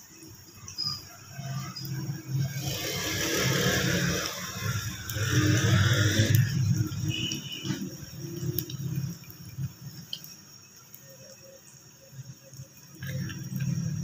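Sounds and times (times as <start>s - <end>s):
food sizzling in hot oil: 0.0s - 14.0s.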